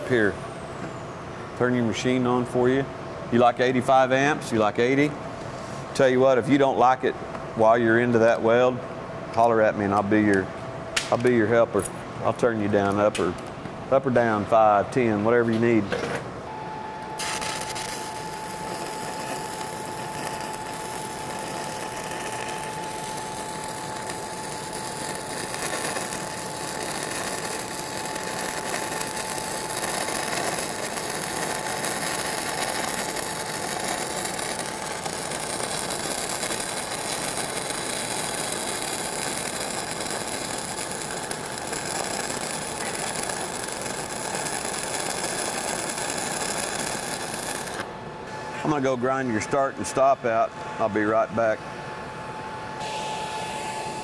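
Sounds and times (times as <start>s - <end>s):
welding arc crackling hiss: 17.1s - 47.9s.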